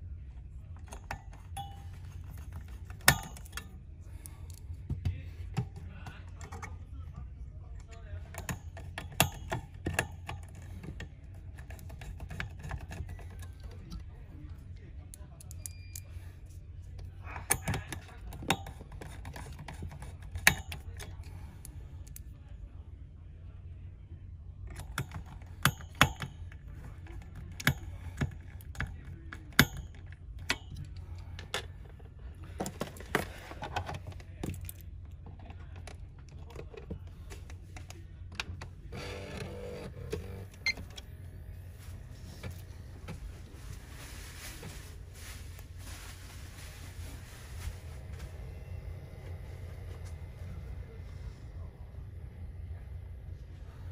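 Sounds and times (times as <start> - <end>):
steady low hum: 0.0 - 53.9
screwdriver tapping plastic fan: 2.5 - 3.7, 8.3 - 14.0, 17.5 - 21.2, 24.7 - 31.7
low hum: 38.2 - 53.9.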